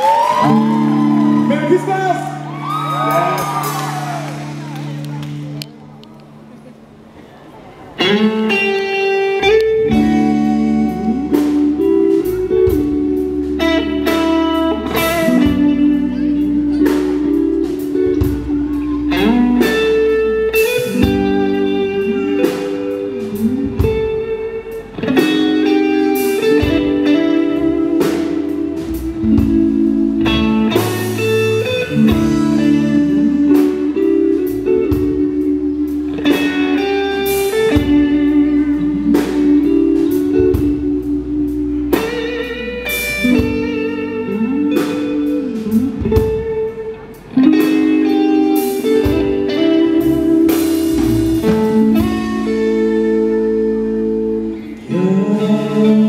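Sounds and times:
lead electric guitar: 0.0 - 56.0
rock band playing: 0.0 - 56.0.

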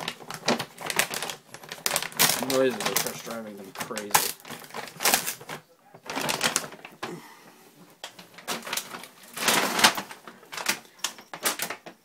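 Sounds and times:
foil bag crinkling: 0.0 - 7.3, 8.0 - 12.0.

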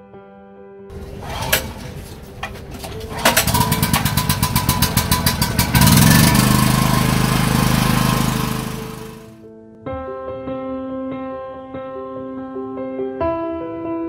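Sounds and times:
generator engine chugging: 0.9 - 9.4.

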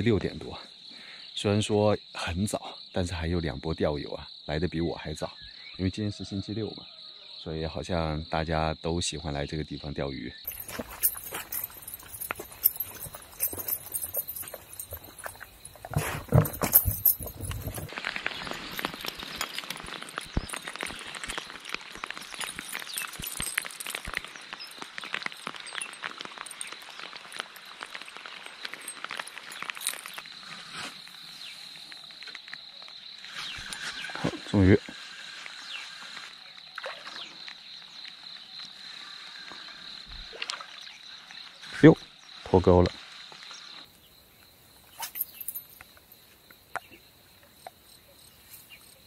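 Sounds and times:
high-pitched insect drone: 10.4 - 45.9.

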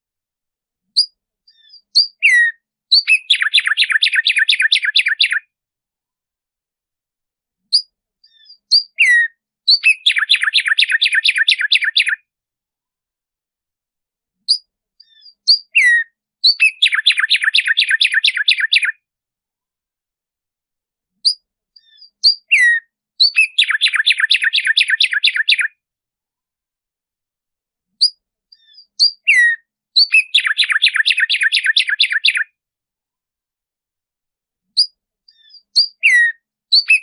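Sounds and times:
sparrow singing: 0.9 - 5.5, 7.6 - 12.3, 14.4 - 19.0, 21.2 - 25.8, 28.0 - 32.6, 34.7 - 37.0.

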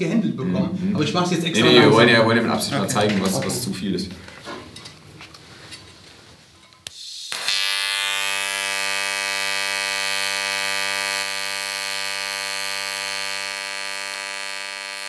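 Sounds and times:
welding arc buzzing: 6.8 - 15.0.

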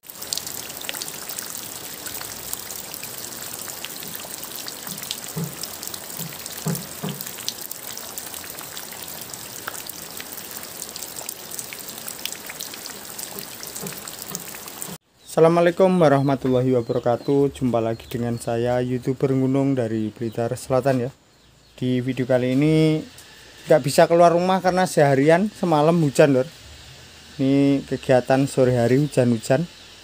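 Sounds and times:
rain falling into puddle: 0.0 - 15.0
short low knocks: 5.3 - 7.3.

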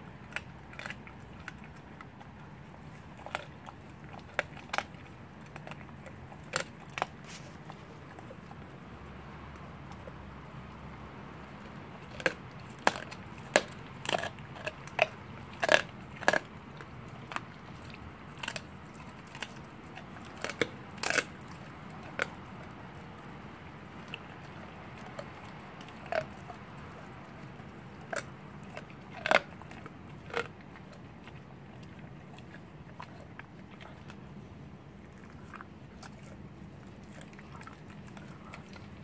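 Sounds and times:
dog crunching bones: 0.0 - 39.0.

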